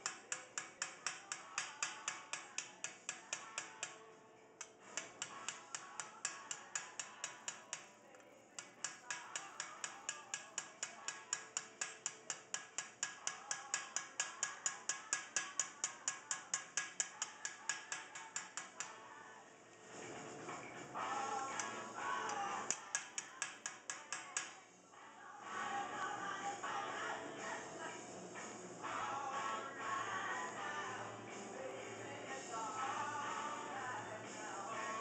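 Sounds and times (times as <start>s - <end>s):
hammer tapping sheet metal: 0.0s - 4.0s, 4.6s - 7.9s, 8.5s - 19.0s, 21.5s - 24.6s.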